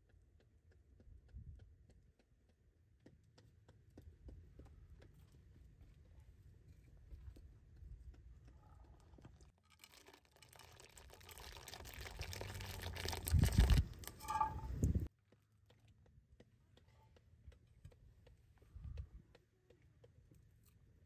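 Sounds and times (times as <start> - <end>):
chickpeas sliding and splashing: 9.6 - 14.4
metallic ring of pots: 14.1 - 14.9.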